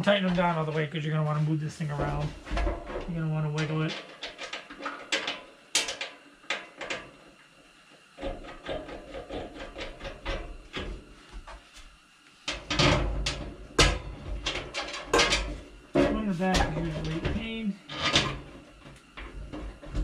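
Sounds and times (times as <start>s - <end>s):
sheet metal parts rattling: 12.5s - 20.0s.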